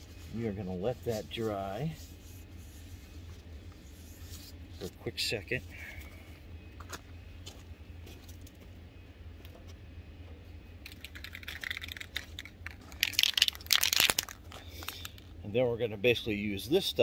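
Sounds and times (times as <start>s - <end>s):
low steady rumble: 0.0s - 17.0s
small objects clicking and rattling: 10.8s - 15.3s.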